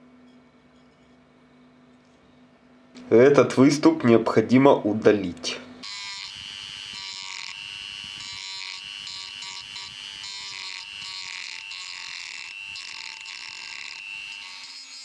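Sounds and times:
grinding wheel on metal: 0:05.8 - 0:15.0
rotary tool whining: 0:05.8 - 0:15.0.

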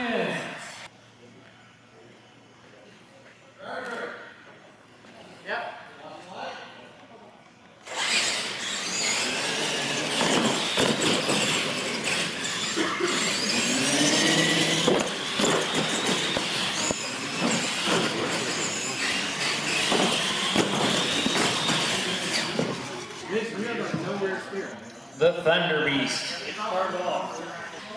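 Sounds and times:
electric motors whining: 0:07.8 - 0:25.2.

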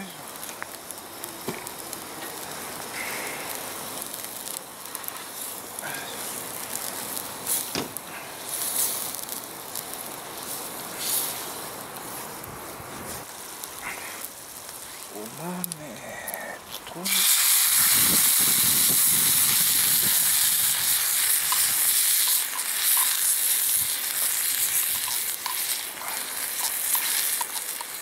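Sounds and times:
meat sizzling in skillet: 0:00.0 - 0:15.4, 0:16.7 - 0:28.0
fire crackling: 0:00.0 - 0:28.0
spoon scraping pan: 0:24.9 - 0:28.0.

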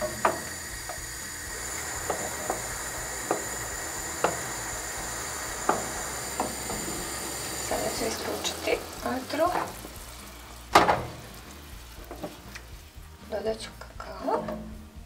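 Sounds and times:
wooden spoon knocking on pot: 0:00.0 - 0:01.0, 0:01.7 - 0:10.0
boiling liquid hiss: 0:00.0 - 0:15.0.

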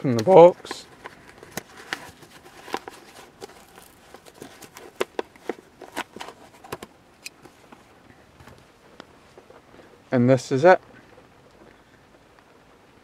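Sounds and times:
packaging crinkling: 0:00.1 - 0:07.8.

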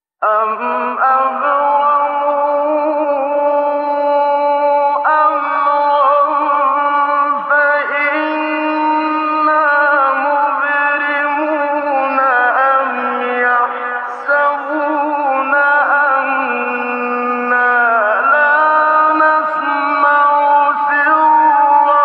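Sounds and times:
man chanting melodically: 0:00.2 - 0:22.0.

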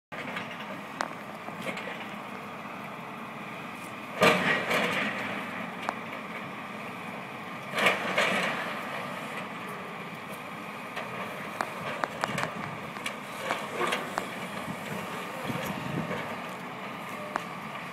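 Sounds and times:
excavator running: 0:00.1 - 0:17.9
small cracks and clatters: 0:11.0 - 0:14.4.

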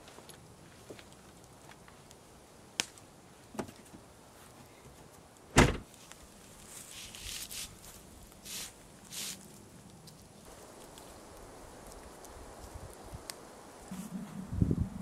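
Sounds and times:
car tailgate slamming shut: 0:05.6 - 0:05.8
rustling: 0:05.7 - 0:14.5.

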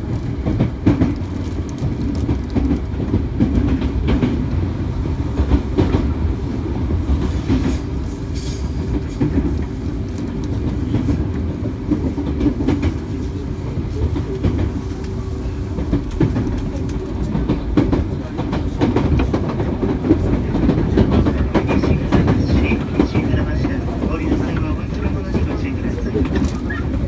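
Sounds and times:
train wheels rumbling on rail: 0:00.0 - 0:27.0
rail-joint clicks: 0:07.2 - 0:27.0.

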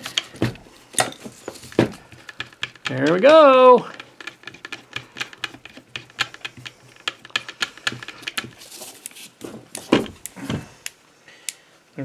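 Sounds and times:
drill thumping on bench: 0:00.0 - 0:08.6, 0:09.4 - 0:10.7
drill chuck clicking: 0:03.9 - 0:08.5.

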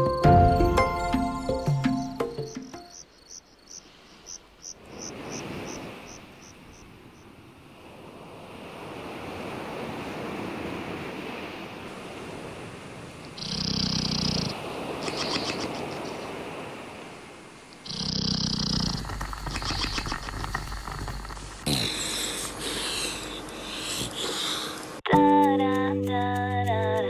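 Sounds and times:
crickets chirping: 0:00.0 - 0:07.3, 0:13.2 - 0:25.0
ocean surf: 0:03.8 - 0:13.4, 0:14.3 - 0:18.0, 0:19.0 - 0:25.1.

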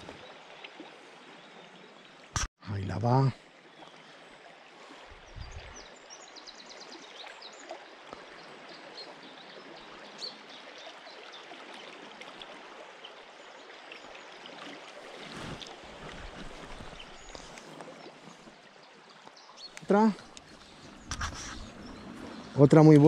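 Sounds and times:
river current rushing: 0:14.4 - 0:18.6.

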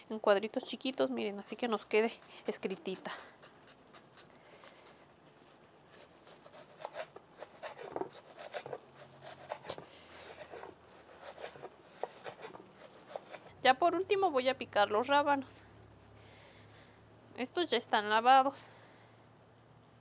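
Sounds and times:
knife dicing onion on wooden board: 0:06.0 - 0:13.5.

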